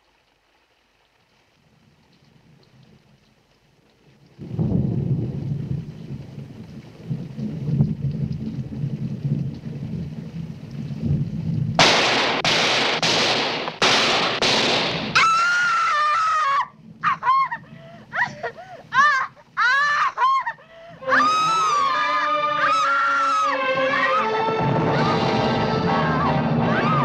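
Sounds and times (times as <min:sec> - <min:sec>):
low rumble: 0:04.4 - 0:11.8
gunshots: 0:11.8 - 0:15.2
woman's long scream: 0:15.2 - 0:27.0
short shrill screaming cries: 0:21.0 - 0:27.0.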